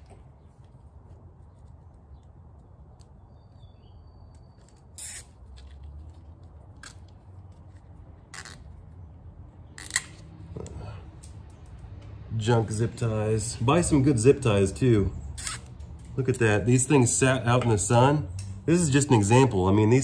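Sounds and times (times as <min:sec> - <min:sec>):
zip ties zipping tight: 0:08.3 - 0:08.6, 0:15.4 - 0:15.7.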